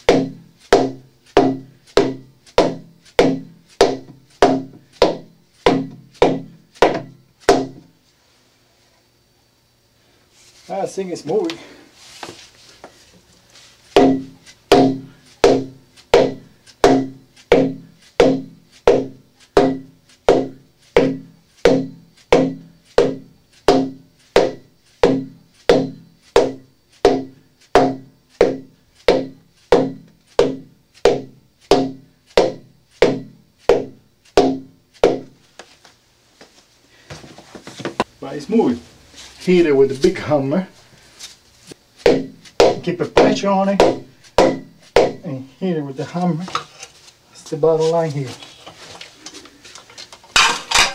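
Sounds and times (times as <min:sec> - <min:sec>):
hammer striking plastic pipe: 0:00.0 - 0:07.9, 0:13.9 - 0:35.4, 0:42.0 - 0:45.3.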